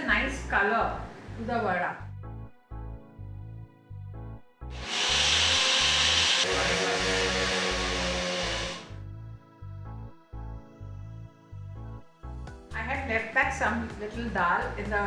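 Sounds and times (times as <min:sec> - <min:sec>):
background music with steady beat: 0:02.0 - 0:15.0
mixer grinder grinding: 0:04.7 - 0:09.0.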